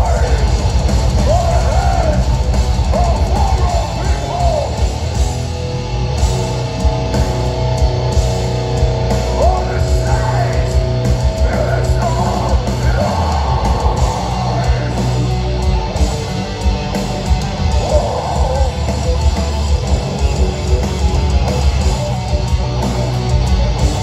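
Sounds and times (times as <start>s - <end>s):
singer's vocals: 0.0s - 0.6s, 1.2s - 2.3s, 2.9s - 4.8s, 9.3s - 15.4s, 17.7s - 19.3s
metalcore band playing: 0.0s - 24.0s.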